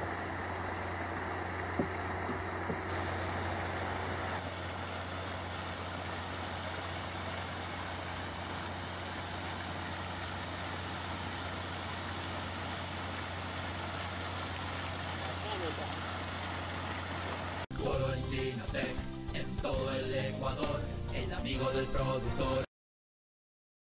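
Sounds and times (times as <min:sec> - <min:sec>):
low motor hum: 0:00.0 - 0:17.6
water splashing spray: 0:00.0 - 0:17.6.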